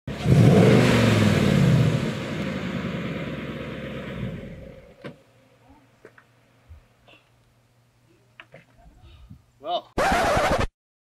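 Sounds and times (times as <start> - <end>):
car engine revving: 0.1 - 5.0.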